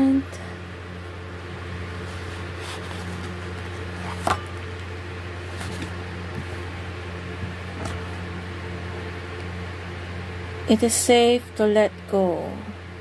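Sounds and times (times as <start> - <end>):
steady low hum: 0.0 - 13.0
cards sliding: 2.0 - 4.6, 5.4 - 6.5.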